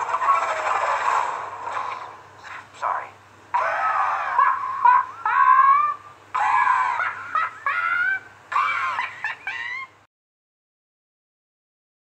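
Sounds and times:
faint low hum: 0.0s - 10.1s
high-pitched squealing laugh: 3.6s - 10.0s.

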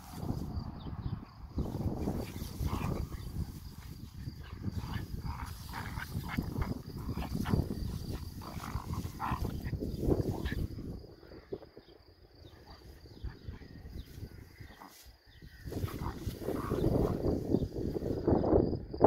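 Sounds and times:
puppies growling: 2.0s - 10.8s.

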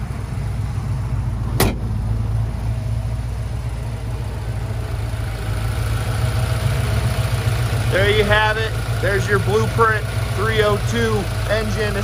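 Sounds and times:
car engine idling: 0.0s - 12.0s
sharp knock: 1.6s - 1.8s.

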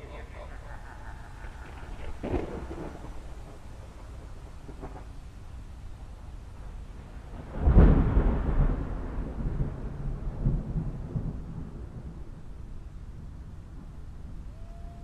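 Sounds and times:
steady low background noise: 0.0s - 15.0s
thunder rumbling: 0.0s - 15.0s.

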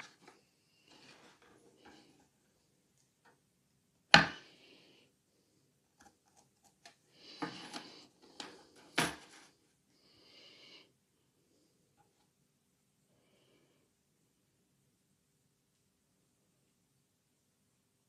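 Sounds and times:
scraping and rustling: 0.0s - 2.4s, 6.1s - 9.6s.

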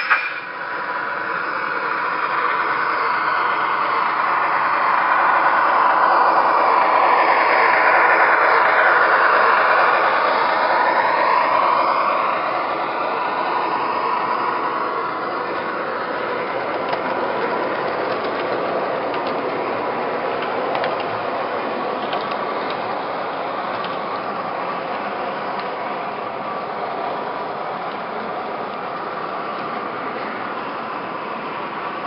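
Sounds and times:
wheels clicking over track joints: 15.5s - 21.2s, 21.9s - 23.0s, 23.6s - 24.1s.

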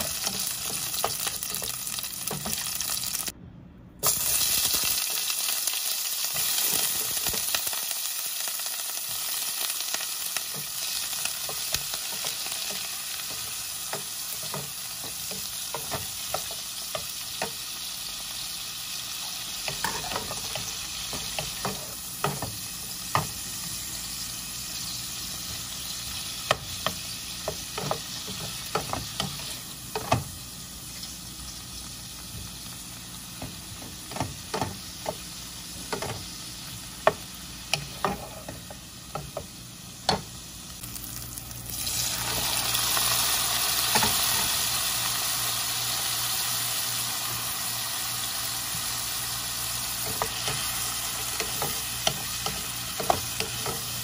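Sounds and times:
shrimp sizzling in oil: 0.0s - 3.3s, 4.0s - 54.0s
spatula scraping pan: 37.1s - 39.4s.

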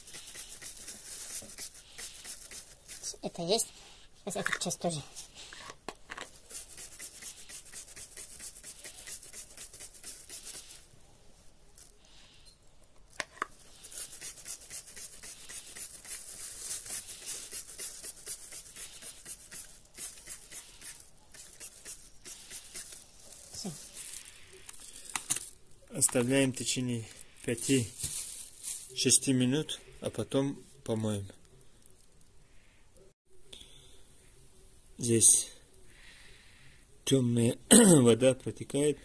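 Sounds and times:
hand scrubbing metal fins: 6.3s - 10.9s, 13.5s - 23.1s.

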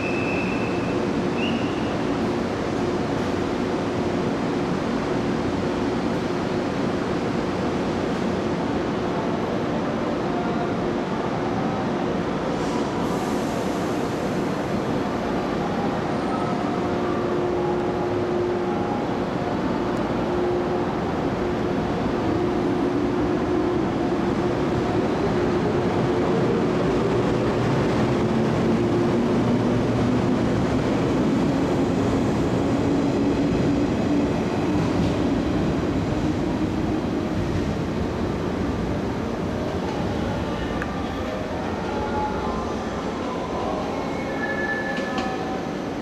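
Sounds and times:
train wheels on rails: 19.8s - 46.0s.

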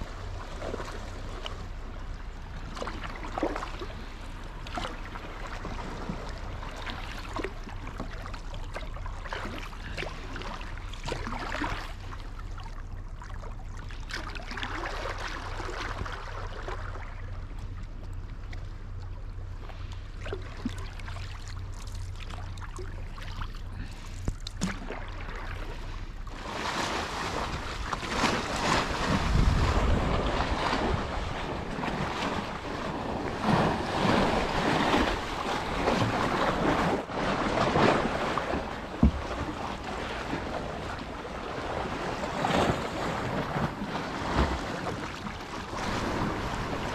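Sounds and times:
kayak paddle splashing in water: 20.2s - 46.9s
small waves against rocky shore: 24.6s - 46.9s
wind buffeting microphone: 27.3s - 37.2s.

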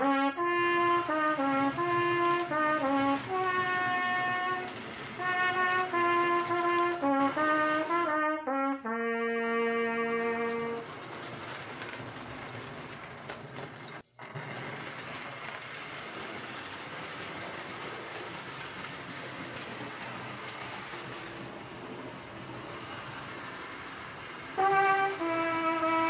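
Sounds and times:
held trumpet note: 0.0s - 10.9s, 24.6s - 26.0s
model train whirring: 0.0s - 26.0s
wheels clicking over rail joints: 0.0s - 26.0s.

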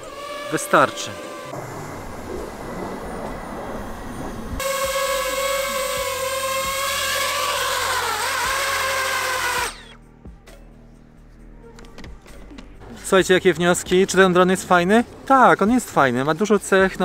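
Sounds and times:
steady rushing noise: 0.0s - 7.1s
drone propellers whining: 0.0s - 10.1s.

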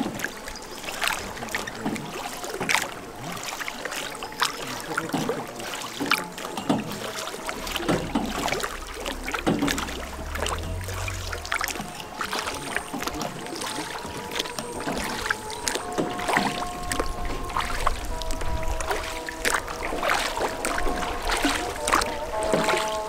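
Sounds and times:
low rumble: 7.3s - 13.1s.

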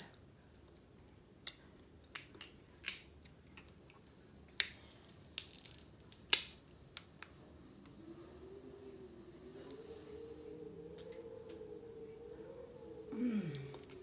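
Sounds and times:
crab shell cracking: 5.4s - 6.6s.

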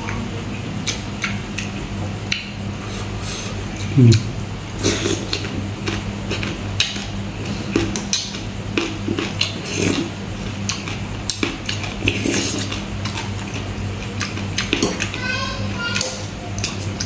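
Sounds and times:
steady low hum: 0.0s - 17.0s
lips slurping: 10.7s - 13.6s.

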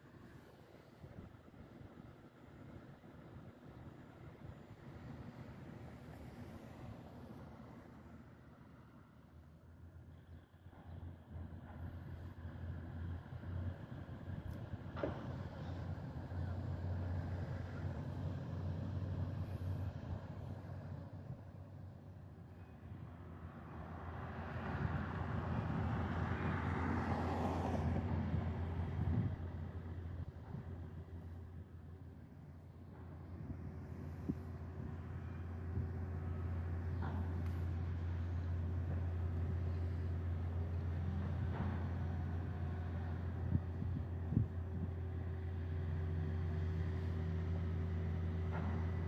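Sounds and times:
motor vehicle rumble passing: 22.9s - 49.0s.

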